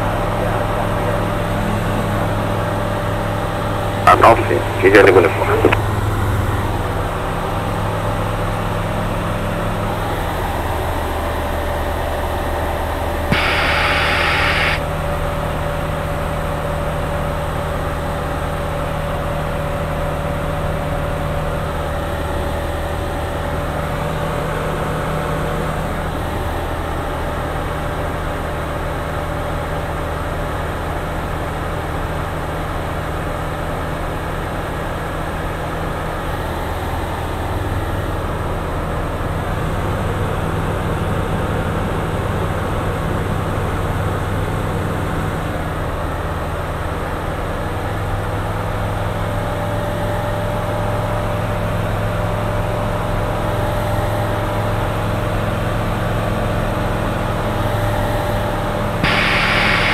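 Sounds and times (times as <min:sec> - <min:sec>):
light aircraft engine drone: 0:00.0 - 0:14.8, 0:59.0 - 0:59.9
burst of hiss: 0:13.3 - 0:14.8, 0:59.0 - 0:59.9
click: 0:13.3 - 0:14.8.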